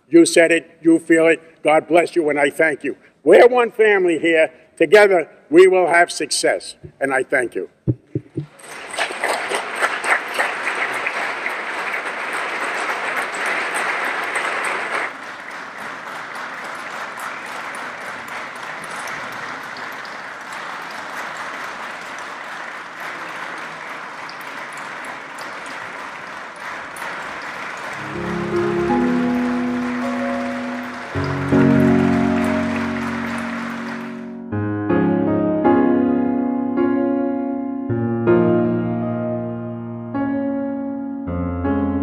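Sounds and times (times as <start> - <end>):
crowd applauding: 8.2 - 34.4.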